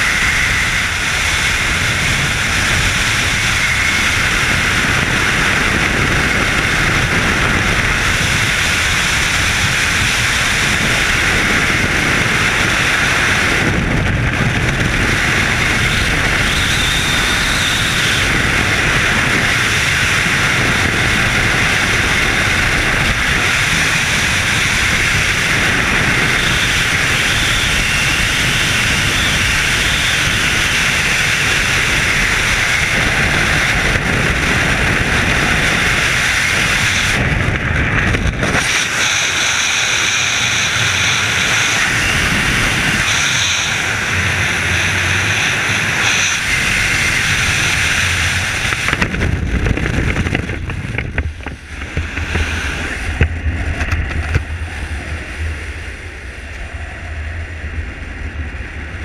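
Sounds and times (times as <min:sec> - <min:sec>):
wind rushing over microphone: 0:00.0 - 0:59.0.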